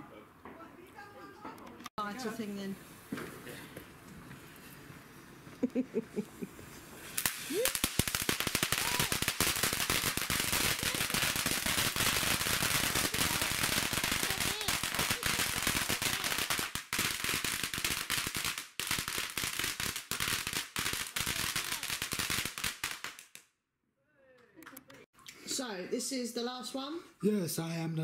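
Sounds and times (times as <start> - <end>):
firework crackling and banging: 1.4 - 4.0, 6.6 - 23.4.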